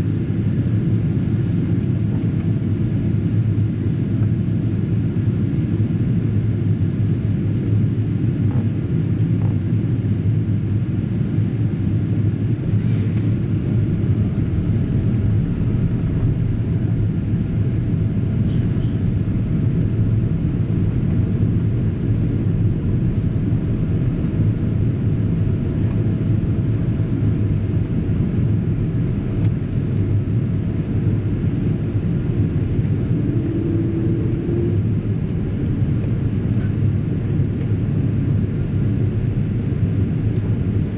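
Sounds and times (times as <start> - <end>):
aircraft engines rumbling: 0.0 - 40.9
rushing airflow: 12.2 - 40.9.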